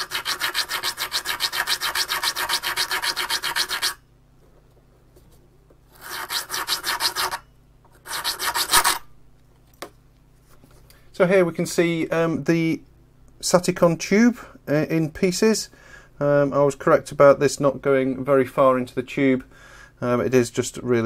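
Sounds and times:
file rasping on glass: 0.0 - 4.0, 6.0 - 7.4, 8.0 - 9.0.

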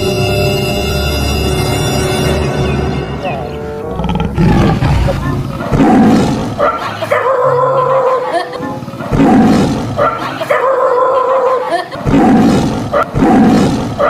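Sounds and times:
lion roaring: 3.8 - 6.7.

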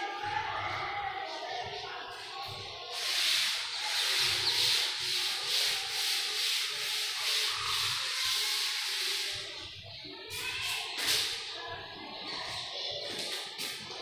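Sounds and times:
cloth wiping chalkboard: 2.9 - 9.6.

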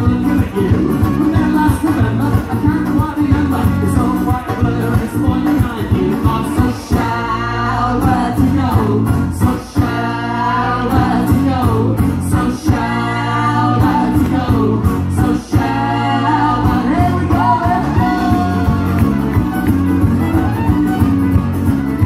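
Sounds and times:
person singing: 0.0 - 19.4
bass: 0.0 - 22.0
drums: 0.0 - 22.0
strummed acoustic guitar: 0.0 - 22.0
fiddle: 17.5 - 22.0.

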